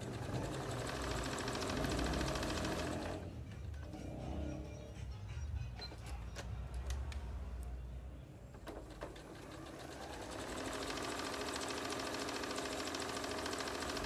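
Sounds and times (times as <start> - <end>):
sewing machine stitching: 0.0 - 3.3, 8.6 - 14.0.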